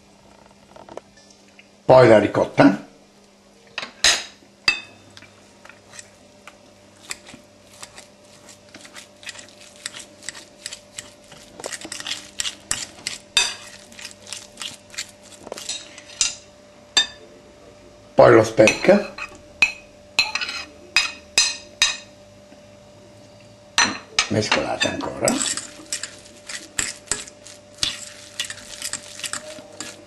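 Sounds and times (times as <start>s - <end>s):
fork clinking against glass bowl: 24.8s - 30.0s.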